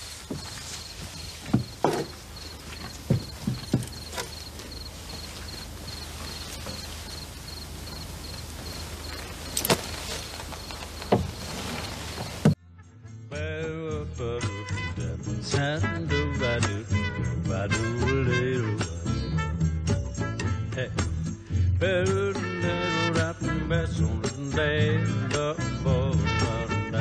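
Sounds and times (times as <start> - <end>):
crickets chirping: 0.0 - 12.6
thumps against wooden wall: 0.3 - 4.9.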